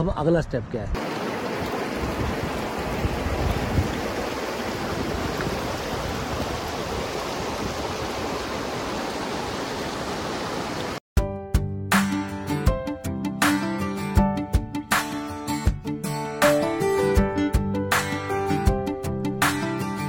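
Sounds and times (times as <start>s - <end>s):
river water rushing: 1.0s - 11.0s
strummed acoustic guitar music: 11.9s - 20.0s.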